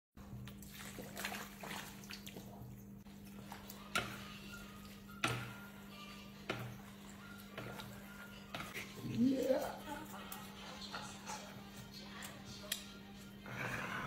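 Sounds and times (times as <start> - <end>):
chopsticks tossing noodles: 3.1 - 13.4.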